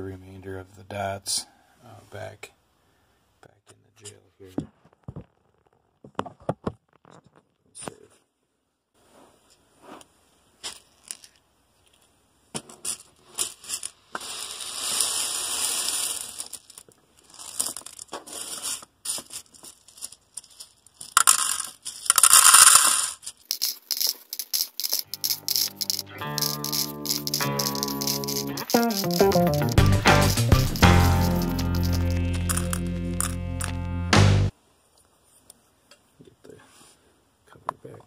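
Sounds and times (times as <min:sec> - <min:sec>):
plastic pieces pouring and clattering: 0:13.3 - 0:33.8.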